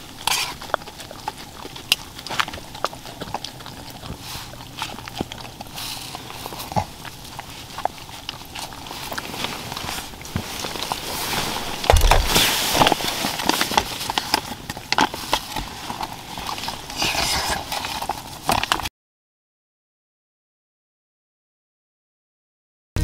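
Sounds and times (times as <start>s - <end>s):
nylon clothing swishing: 11.0s - 13.2s.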